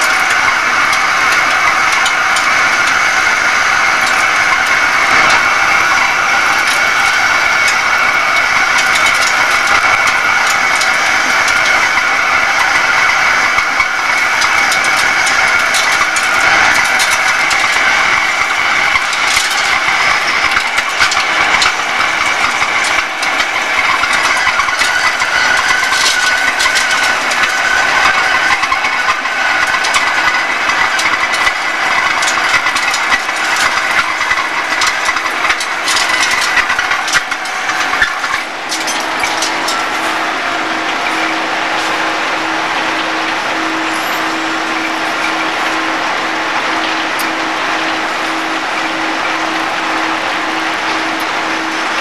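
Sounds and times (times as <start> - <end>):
lathe machine with high whine: 0.0 - 52.0.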